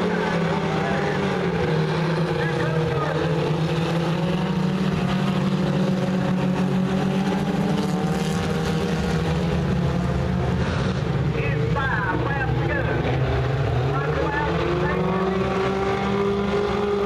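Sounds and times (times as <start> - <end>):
distant race car engines droning: 0.0 - 17.0.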